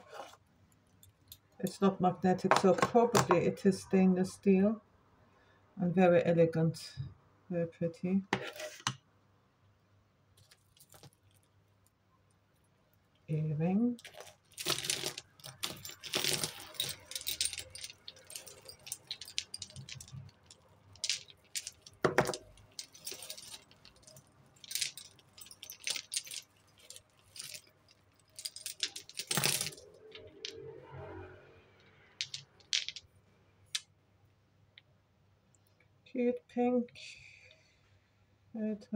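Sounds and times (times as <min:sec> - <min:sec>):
jewellery clinking and jangling: 0:10.4 - 0:11.5, 0:13.8 - 0:30.7, 0:31.8 - 0:33.1.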